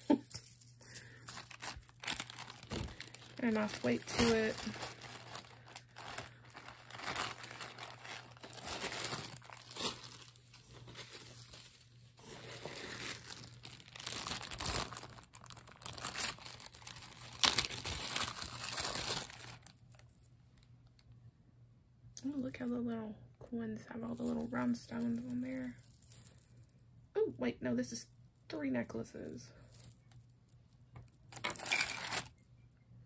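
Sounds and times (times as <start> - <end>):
plastic bags crinkling: 0.0 - 21.0, 29.5 - 32.4.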